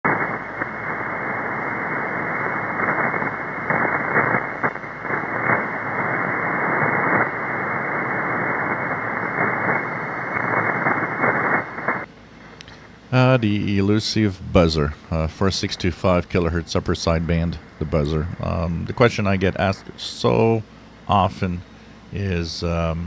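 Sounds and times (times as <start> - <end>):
radio hiss: 0.0 - 23.0
static crackles: 0.0 - 23.0.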